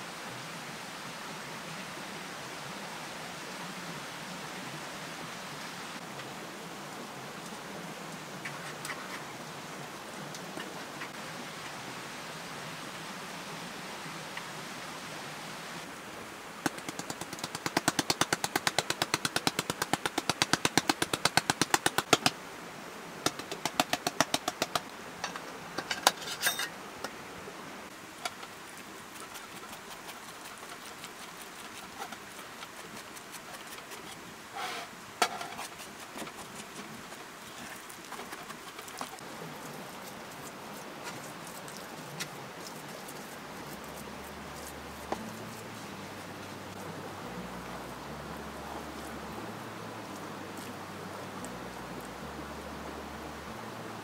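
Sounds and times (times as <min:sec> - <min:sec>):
utensil stirring in a wooden bowl: 0:28.2 - 0:34.2, 0:35.3 - 0:39.2.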